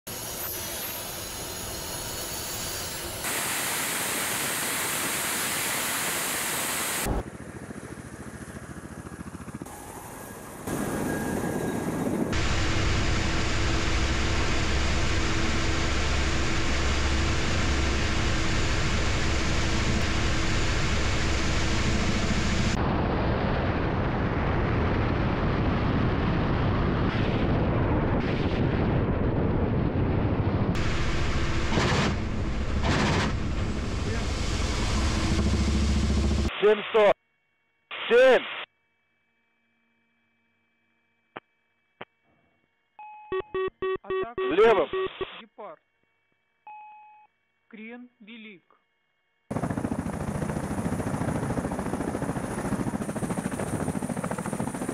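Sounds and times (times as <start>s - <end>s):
helicopter engine and rotor noise: 0.1s - 27.0s, 29.4s - 36.6s, 49.0s - 54.9s
helicopter turbine whine: 0.1s - 37.1s, 49.4s - 54.9s.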